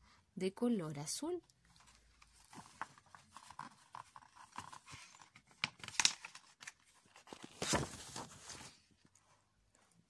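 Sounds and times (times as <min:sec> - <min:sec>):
page turning rustle: 0:01.7 - 0:09.1
paper book handling clicks: 0:04.6 - 0:08.7.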